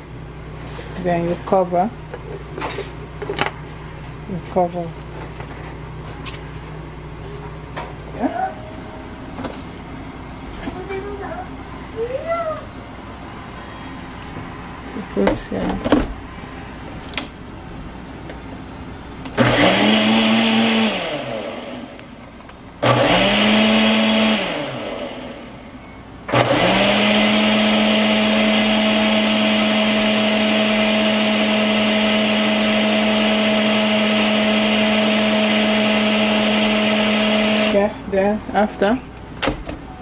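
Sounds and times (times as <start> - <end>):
blender motor churning water: 19.4 - 21.6, 22.8 - 25.3, 26.3 - 37.8.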